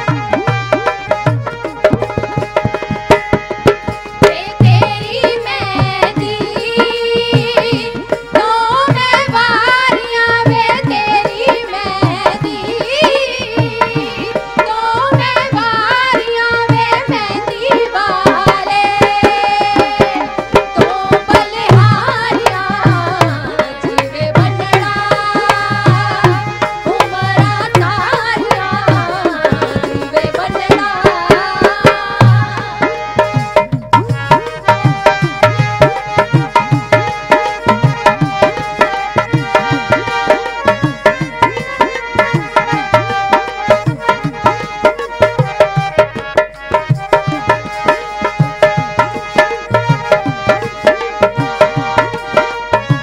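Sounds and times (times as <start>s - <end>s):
hand drum beat: 0.0s - 53.0s
harmonium: 0.0s - 53.0s
women singing folk song: 4.2s - 32.8s.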